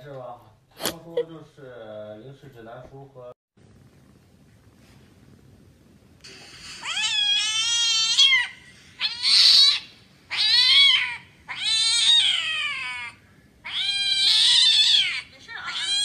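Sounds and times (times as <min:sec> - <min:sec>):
cat meowing: 0:06.8 - 0:16.0.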